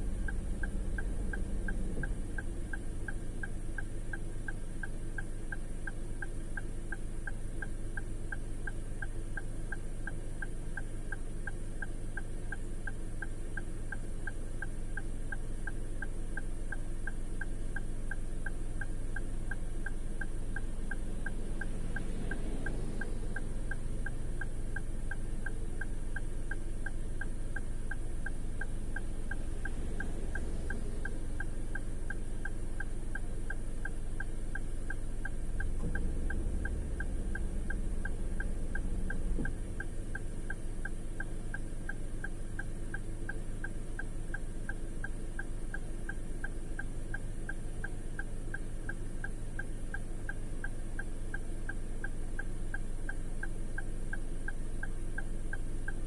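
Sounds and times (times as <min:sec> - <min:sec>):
low rumble: 0:00.0 - 0:04.1, 0:20.7 - 0:41.7
car engine idling: 0:00.0 - 0:56.0
hazard light relay ticking: 0:00.0 - 0:56.0.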